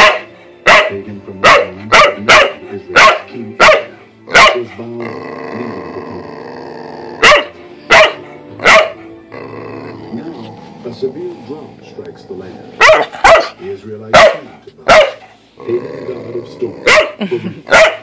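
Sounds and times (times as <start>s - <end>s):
dog barking: 0.0s - 4.7s, 7.2s - 9.1s, 12.8s - 15.4s, 16.8s - 18.0s.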